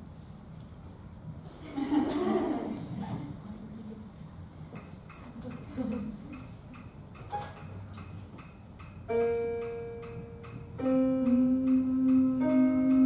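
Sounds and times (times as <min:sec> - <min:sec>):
soft ticking: 0:04.8 - 0:13.0
women singing a cappella: 0:11.1 - 0:13.0.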